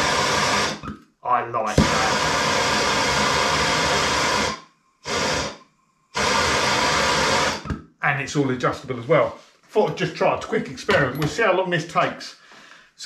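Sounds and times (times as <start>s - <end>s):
gas torch flame hissing: 0.0s - 0.9s, 1.7s - 7.8s.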